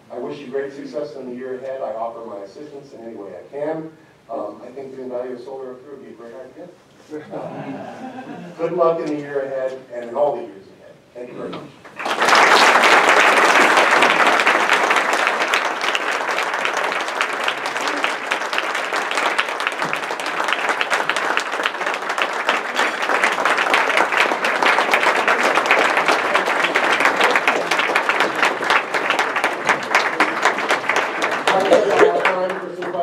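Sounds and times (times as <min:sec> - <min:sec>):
audience applauding: 0:11.9 - 0:33.0.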